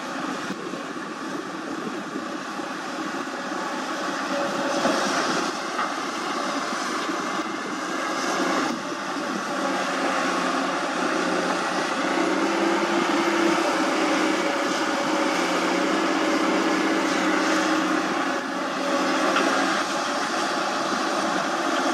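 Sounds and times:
excavator diesel engine running: 0.0 - 21.9.

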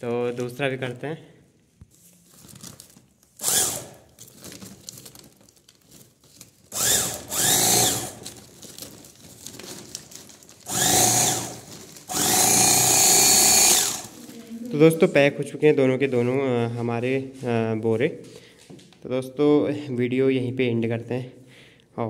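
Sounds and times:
sewing machine motor whining: 3.4 - 4.0, 6.7 - 8.2, 10.7 - 14.2.

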